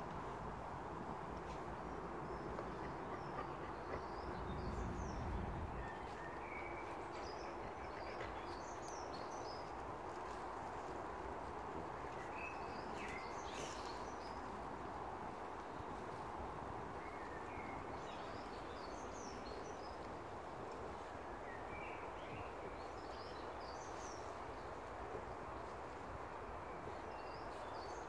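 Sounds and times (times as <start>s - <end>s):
breeze rustling through trees: 0.0s - 28.0s
low rumble: 4.2s - 5.9s.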